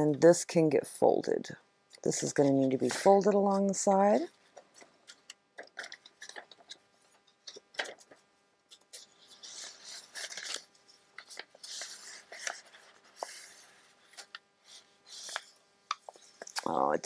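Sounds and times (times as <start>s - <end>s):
paper rustling and crinkling: 4.5s - 16.6s.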